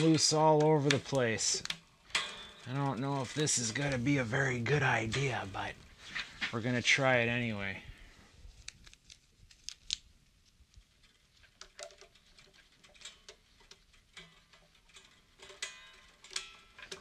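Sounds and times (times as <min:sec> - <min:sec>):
clicks of handling guitar hardware: 0:00.0 - 0:04.0.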